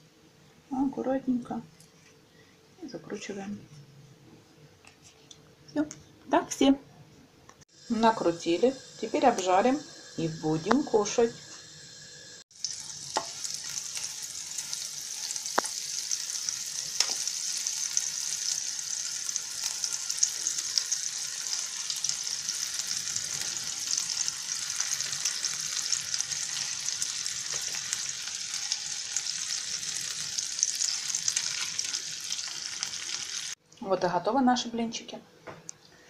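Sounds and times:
crepes sizzling in hot fat: 7.7s - 33.6s.

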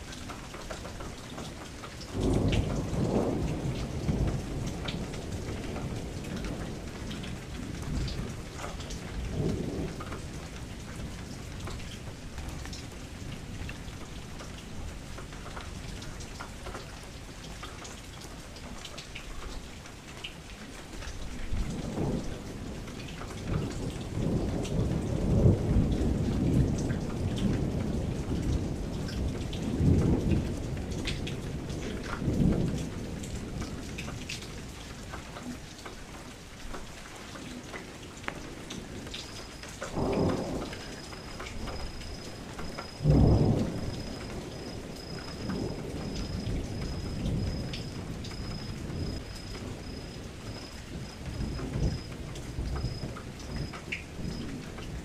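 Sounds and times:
steady rain falling: 0.0s - 55.0s
rolling thunder: 2.0s - 12.7s, 21.5s - 34.5s, 38.4s - 55.0s.

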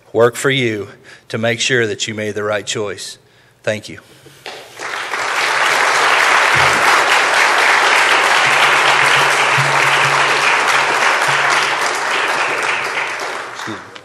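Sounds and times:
audience applauding: 4.5s - 14.0s.

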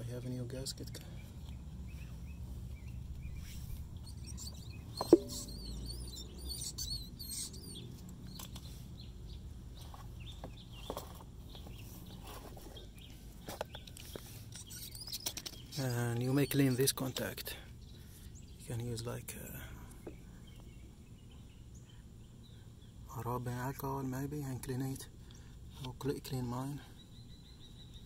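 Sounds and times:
birds singing and chirping: 0.0s - 28.0s
light knocks on metal parts: 5.0s - 5.6s
sharp ringing knock: 5.0s - 6.1s.

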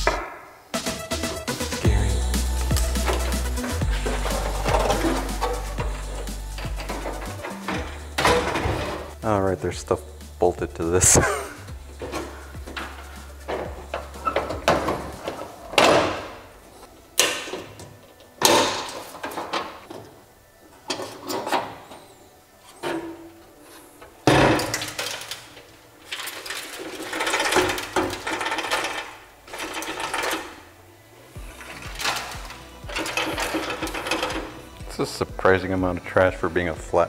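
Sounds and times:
sheet metal clanking and scraping: 2.7s - 20.1s, 20.8s - 30.7s, 31.4s - 35.0s
metal panel rattling: 3.0s - 9.8s, 11.8s - 16.5s, 31.5s - 34.6s.

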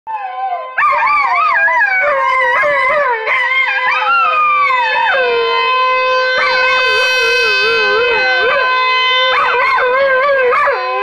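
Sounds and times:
dogs howling: 0.1s - 11.0s
steady pitched tone: 3.4s - 11.0s.

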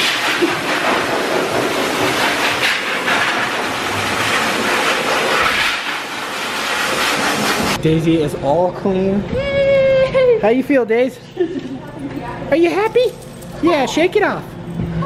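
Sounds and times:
pet dryer blowing air: 0.0s - 7.8s.

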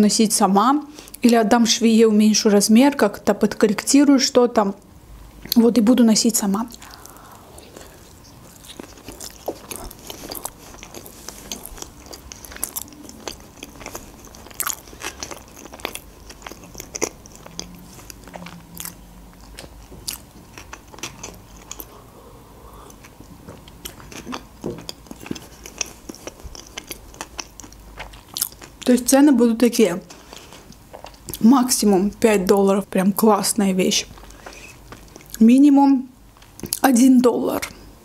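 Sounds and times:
wet chewing mouth clicks: 6.7s - 22.0s.

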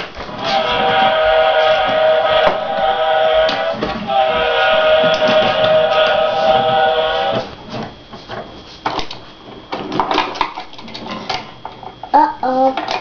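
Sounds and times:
wooden toy trains clacking: 0.0s - 7.4s.

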